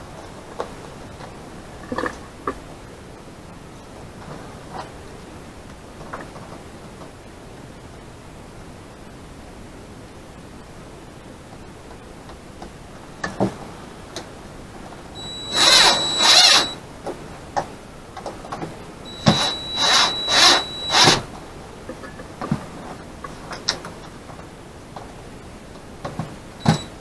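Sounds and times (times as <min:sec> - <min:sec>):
cordless drill motor whining: 0:15.2 - 0:16.8, 0:19.1 - 0:21.3, 0:26.6 - 0:26.9.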